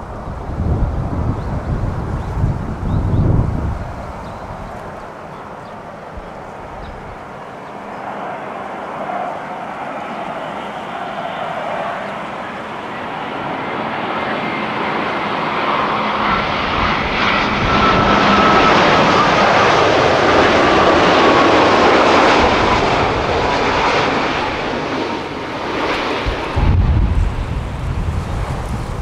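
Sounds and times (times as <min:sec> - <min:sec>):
jet airliner passing overhead: 0:00.0 - 0:29.0.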